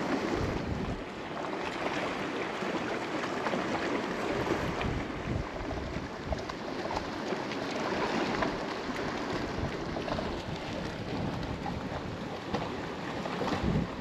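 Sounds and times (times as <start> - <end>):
wind on microphone: 0.0 - 1.1, 4.0 - 7.1, 8.0 - 14.0.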